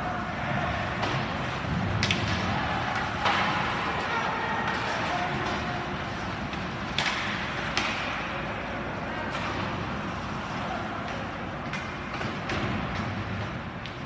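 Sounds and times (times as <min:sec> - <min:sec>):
stick hitting puck: 0:01.9 - 0:05.7, 0:06.5 - 0:08.3.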